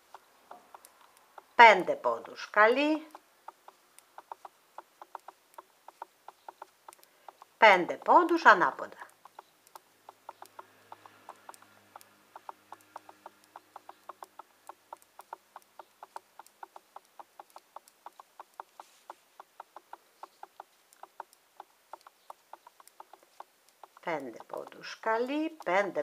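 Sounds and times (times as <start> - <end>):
knitting needles clicking: 0.0 - 26.0.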